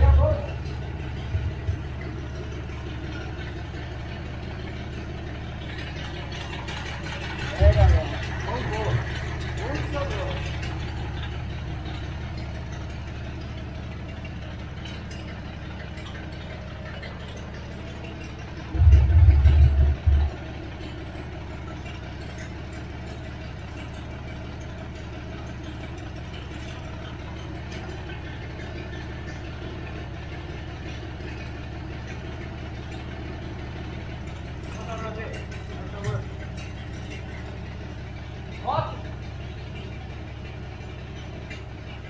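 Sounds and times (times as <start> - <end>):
loud low rumble: 0.0 - 2.2, 18.6 - 20.8
engine idling: 0.0 - 42.0.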